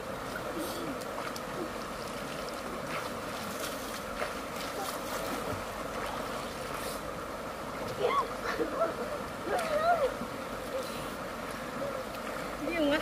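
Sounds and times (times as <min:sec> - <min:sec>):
light swimming splashes: 0:00.0 - 0:13.0
stream rushing over rocks: 0:00.0 - 0:13.0.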